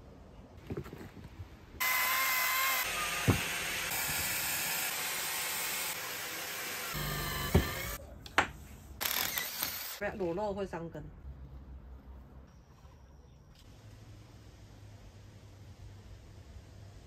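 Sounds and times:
power saw cutting wood: 0:01.8 - 0:08.0.

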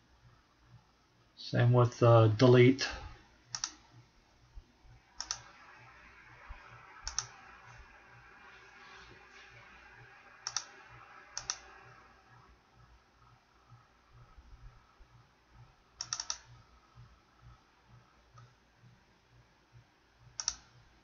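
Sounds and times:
computer mouse clicking: 0:03.5 - 0:03.9, 0:05.2 - 0:05.5, 0:07.0 - 0:07.4, 0:10.4 - 0:11.8, 0:16.0 - 0:16.6, 0:20.4 - 0:20.7.

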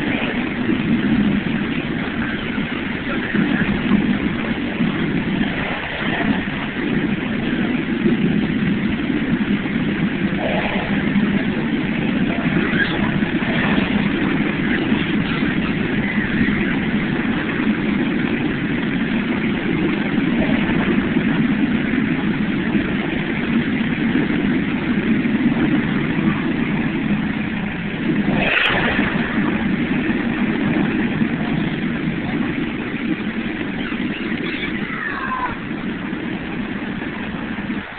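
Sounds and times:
gas flames roaring: 0:00.0 - 0:37.9
water pouring down rock: 0:25.8 - 0:32.5.

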